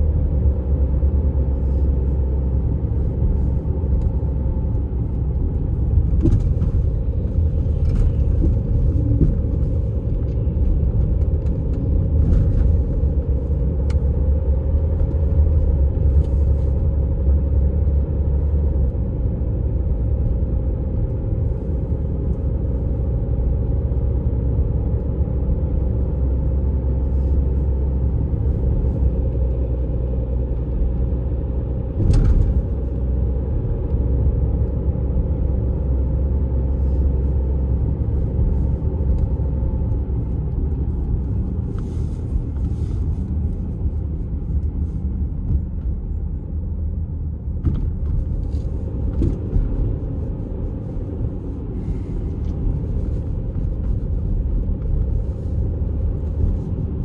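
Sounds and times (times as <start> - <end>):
engine and road rumble: 0.0 - 57.0
brief thump: 32.0 - 32.7, 47.6 - 48.2.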